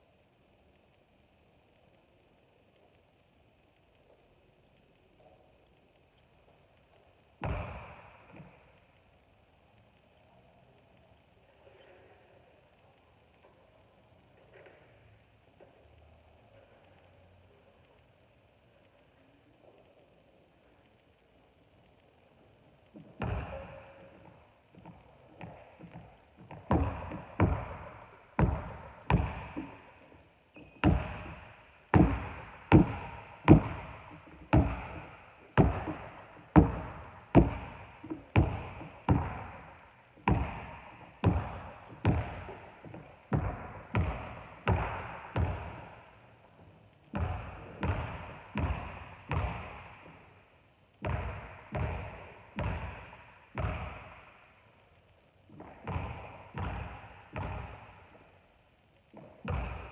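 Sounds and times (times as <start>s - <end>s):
basketball bouncing on wooden floor: 7.4s - 8.6s, 23.0s - 29.9s, 30.5s - 46.0s, 47.1s - 50.3s, 51.0s - 54.2s, 55.5s - 58.2s, 59.2s - 59.9s.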